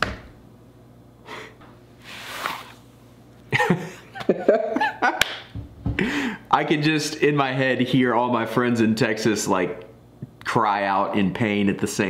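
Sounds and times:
man breathing out heavily: 0:06.0 - 0:06.5.

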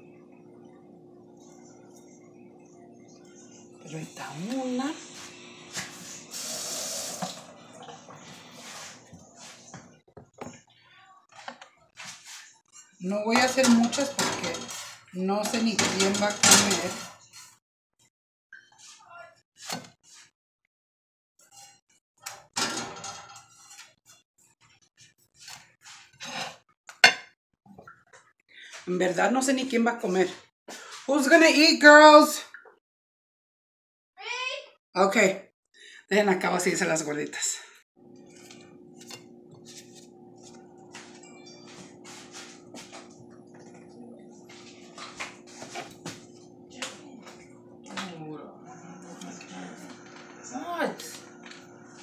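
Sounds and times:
spatula scraping on griddle: 0:12.0 - 0:17.5, 0:21.4 - 0:21.8, 0:22.8 - 0:24.2.

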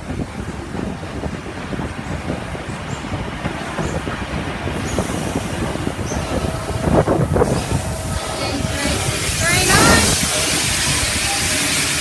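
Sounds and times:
locomotive wheels rumbling on rails: 0:00.0 - 0:12.0
steam hiss: 0:04.7 - 0:12.0.

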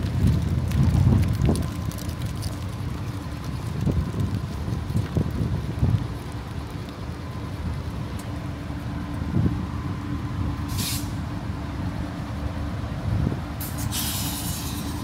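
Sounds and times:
diesel locomotive idling: 0:06.2 - 0:15.0
air hiss: 0:10.7 - 0:11.2, 0:13.6 - 0:15.0.

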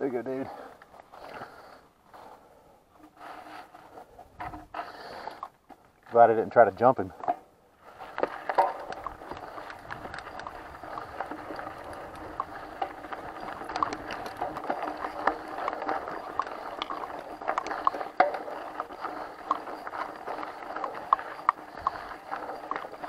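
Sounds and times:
bike clicks and rattles: 0:00.0 - 0:06.5, 0:07.1 - 0:23.0
tyres crunching on gravel: 0:07.8 - 0:23.0.

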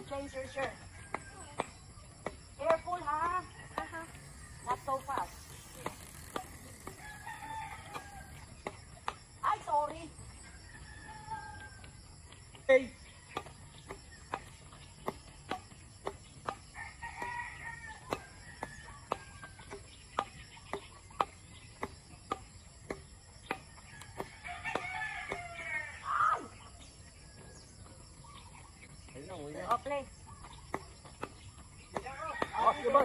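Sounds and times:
sharp clicks: 0:04.6 - 0:08.1
rooster crowing: 0:06.8 - 0:08.5, 0:10.5 - 0:11.9, 0:16.7 - 0:19.6, 0:23.8 - 0:26.1, 0:32.0 - 0:33.0.

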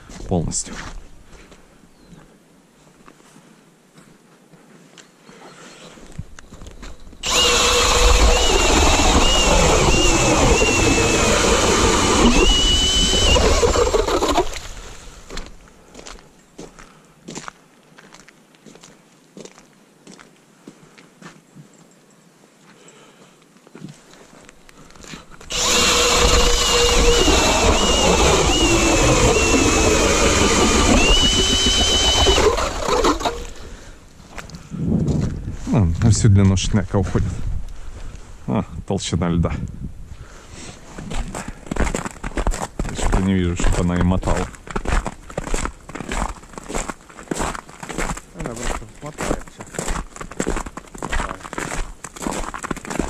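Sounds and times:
cordless drill motor whine: 0:07.2 - 0:15.0, 0:25.4 - 0:33.6
ice auger drilling through ice: 0:07.2 - 0:15.0, 0:25.5 - 0:33.7.

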